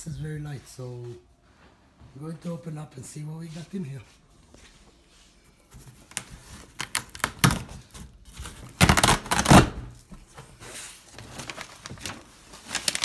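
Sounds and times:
packing tape crackling: 6.1s - 9.8s, 11.1s - 13.0s
cardboard box being torn open: 6.6s - 9.9s.

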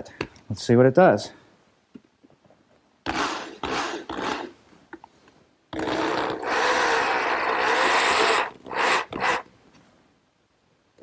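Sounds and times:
electric drill driving screw: 3.0s - 4.5s, 5.8s - 9.5s.

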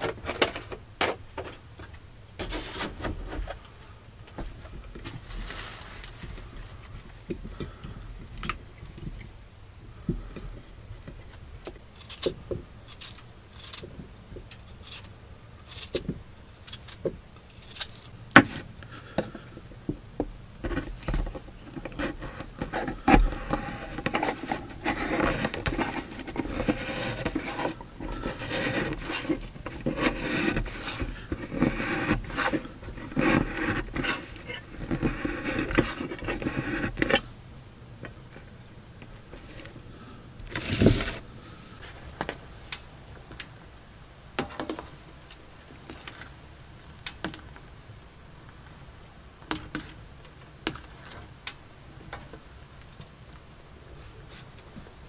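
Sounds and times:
knife scraping tin can: 12.0s - 13.8s, 14.6s - 16.0s, 16.6s - 18.1s, 21.8s - 37.3s.

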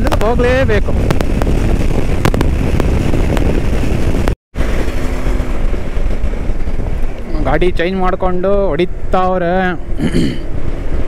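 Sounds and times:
motorcycle engine running: 0.0s - 9.2s
wind rushing on microphone: 0.0s - 11.0s.

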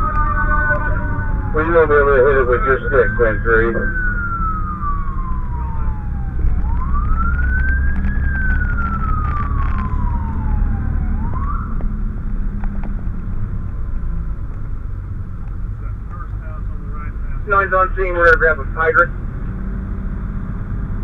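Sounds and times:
fire truck siren: 0.0s - 13.5s, 17.4s - 19.1s
road noise: 0.0s - 21.0s
truck engine rumble: 0.0s - 21.0s.

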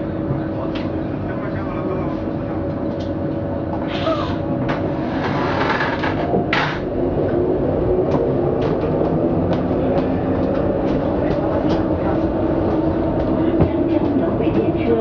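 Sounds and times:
tram running noise: 0.0s - 15.0s
traction motor hum: 4.6s - 15.0s.

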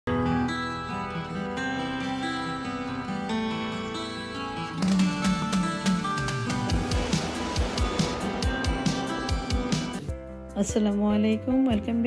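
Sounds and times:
instrumental intro music: 0.1s - 11.5s.

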